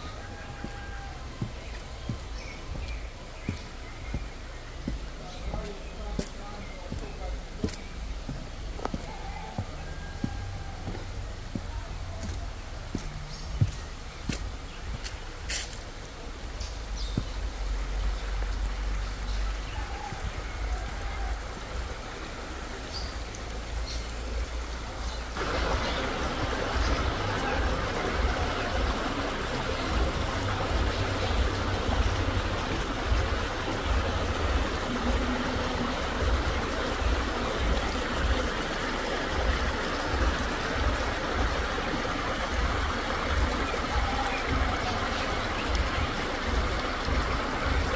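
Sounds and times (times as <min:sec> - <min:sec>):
stream splashing over stones: 0:00.0 - 0:47.9.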